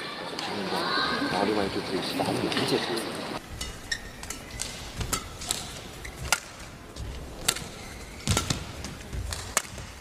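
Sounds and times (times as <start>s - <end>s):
rackets hitting shuttlecock: 3.6s - 10.0s.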